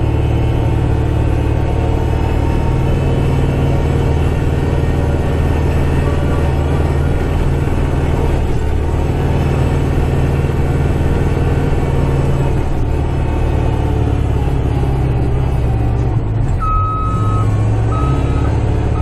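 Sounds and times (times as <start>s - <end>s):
tractor diesel engine running: 0.0s - 19.0s
reversing alarm beep: 16.6s - 19.0s.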